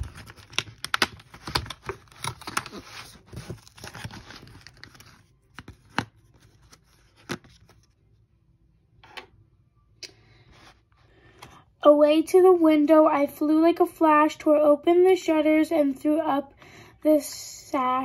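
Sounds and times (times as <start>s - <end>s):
cardboard tearing: 0.0s - 7.7s
plastic tray crackling: 0.0s - 7.7s.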